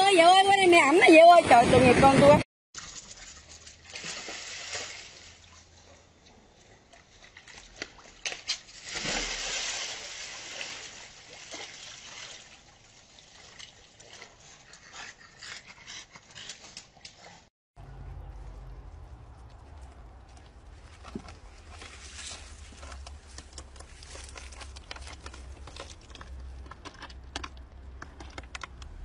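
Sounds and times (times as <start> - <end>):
water splashing in hot tub: 0.7 - 5.9, 6.9 - 14.7.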